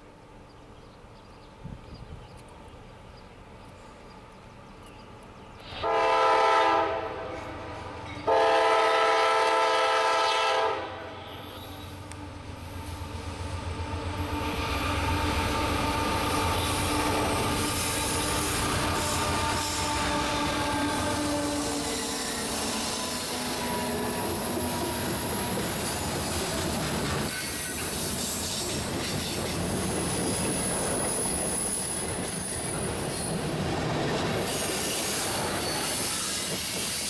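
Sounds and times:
train wheels on rails: 0.0s - 37.0s
locomotive air horn blasts: 5.6s - 12.0s, 14.2s - 25.7s.

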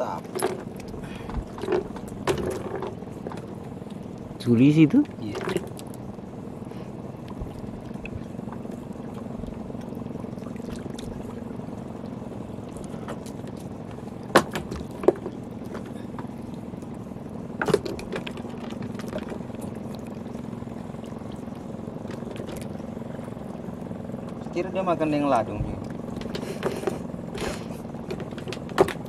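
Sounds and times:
low engine hum: 0.0s - 29.0s
water sloshing around a boat: 0.0s - 29.0s
sharp knocks: 14.3s - 15.3s.

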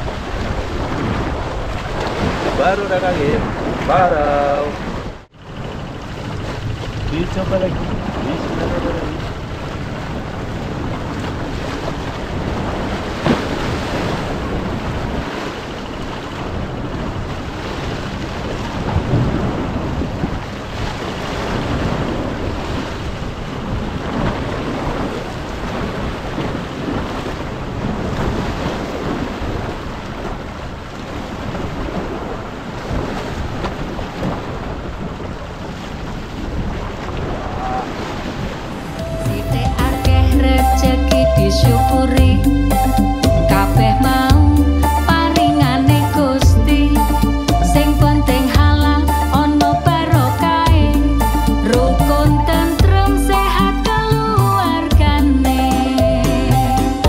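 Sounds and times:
sea waves splashing on rocks: 0.0s - 39.6s
wind buffeting microphone: 0.0s - 44.6s.

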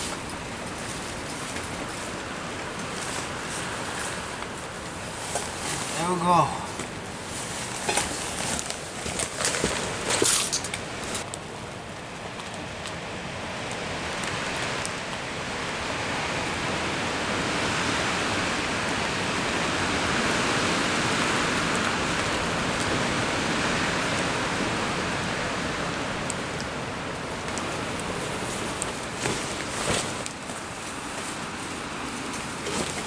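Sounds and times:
gusting wind: 0.0s - 33.0s
heavy rain: 9.8s - 33.0s.

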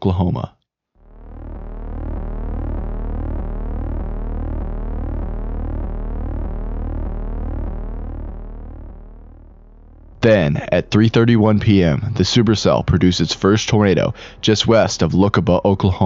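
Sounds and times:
sweeping synth tones: 1.0s - 11.3s
deep synthesized drone: 1.0s - 16.0s.

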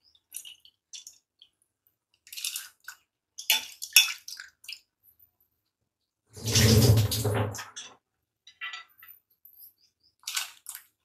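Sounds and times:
boiling water bubbling: 6.4s - 7.6s.

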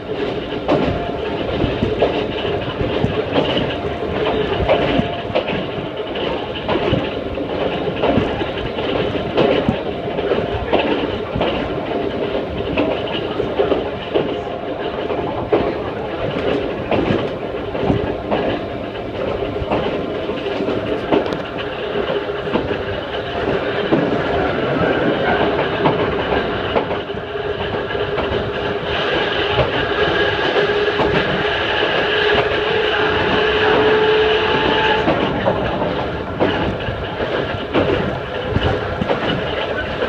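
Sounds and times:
wheels clacking over rail joints: 0.0s - 40.0s
train motor whine: 13.2s - 40.0s.

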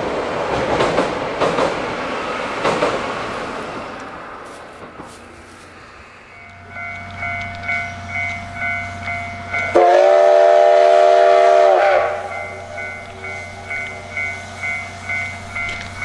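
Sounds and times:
pulsing high ringing tone: 6.2s - 10.7s, 11.4s - 16.0s
train horn blast: 9.6s - 12.8s.

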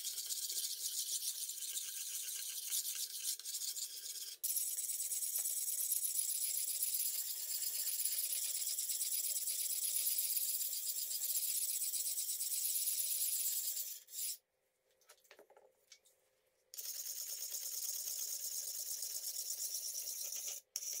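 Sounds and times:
sharpening stone rasping on blade: 0.0s - 4.8s, 9.9s - 14.4s, 18.8s - 21.0s.

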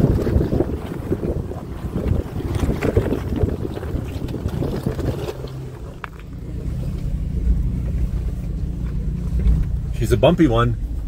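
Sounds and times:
wind on microphone: 0.0s - 6.1s
engine running low: 0.0s - 11.0s
tyres crackling on stones: 4.0s - 9.8s.

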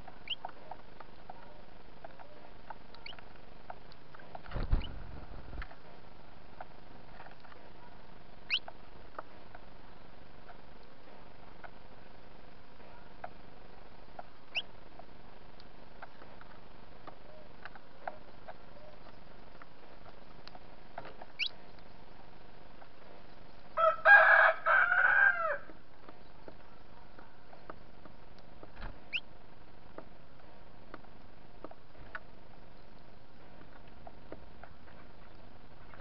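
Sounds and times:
small birds chirping: 0.0s - 23.8s, 25.8s - 36.0s
rooster crowing: 23.8s - 25.7s.

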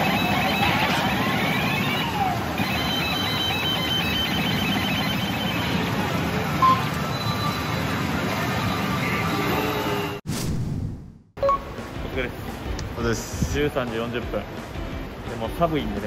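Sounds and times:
beeping tones: 0.0s - 5.9s, 6.6s - 10.2s, 11.4s - 11.7s
pachinko machine noise: 0.0s - 10.2s.

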